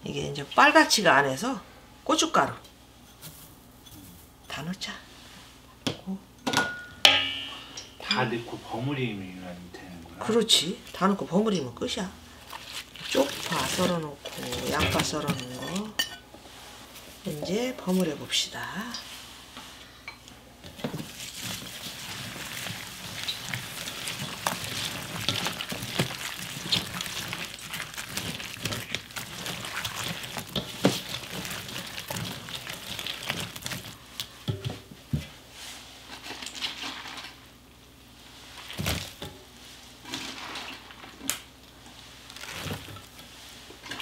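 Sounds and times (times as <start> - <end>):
wet squishing paste mixing: 12.0 - 15.9, 20.6 - 34.5, 38.4 - 39.2, 40.0 - 44.0.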